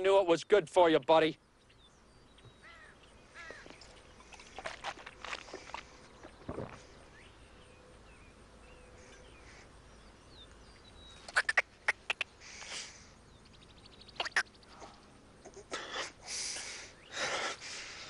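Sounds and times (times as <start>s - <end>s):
faint bird chirps: 1.3s - 16.0s
man swallowing: 4.4s - 6.9s
lip smacking and tongue clicks: 11.3s - 12.3s.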